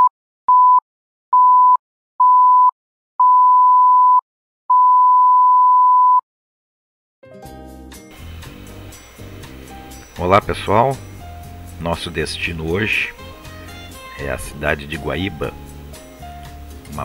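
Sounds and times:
music: 0:07.2 - 0:17.0.

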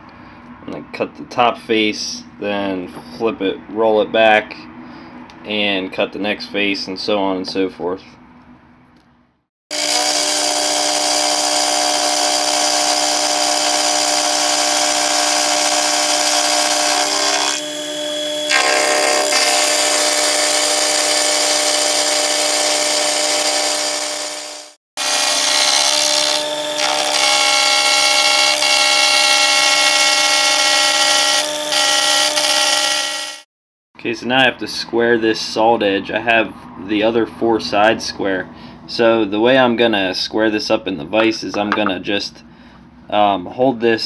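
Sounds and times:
milling machine whine: 0:09.7 - 0:33.4.

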